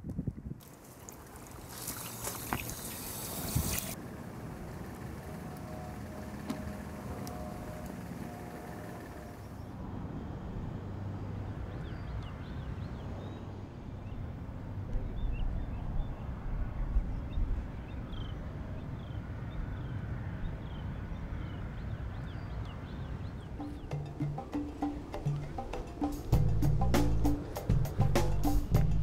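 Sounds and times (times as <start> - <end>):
bird chirps: 20.7 - 25.7.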